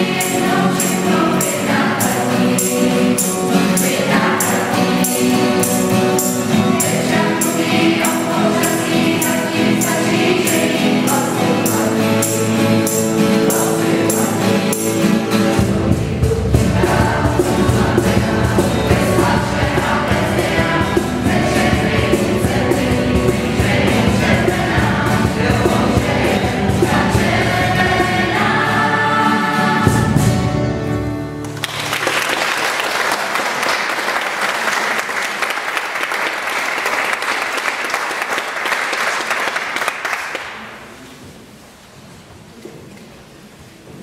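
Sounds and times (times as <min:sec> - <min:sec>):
youth choir singing: 0:00.0 - 0:30.6
acoustic guitars: 0:00.0 - 0:35.2
audience applauding: 0:31.4 - 0:40.9.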